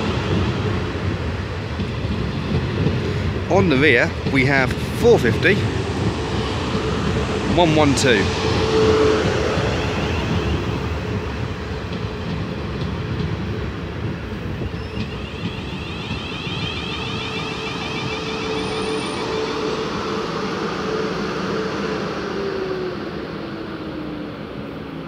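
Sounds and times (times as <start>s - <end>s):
train wheels rumbling on track: 0.0s - 25.0s
train motor whine: 14.6s - 22.7s.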